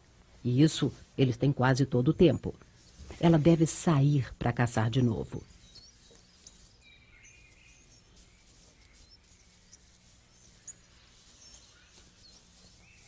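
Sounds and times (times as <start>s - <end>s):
high bird chirps: 5.2s - 13.0s.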